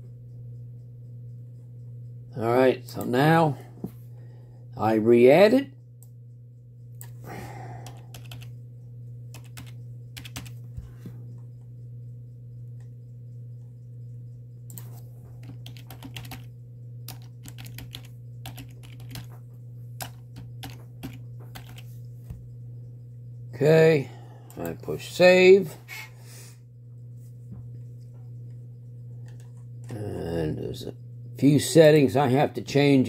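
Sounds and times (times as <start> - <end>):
steady low hum: 0.0 - 33.0
computer keyboard typing: 7.8 - 8.5, 9.3 - 10.6, 14.7 - 19.4, 20.0 - 21.9.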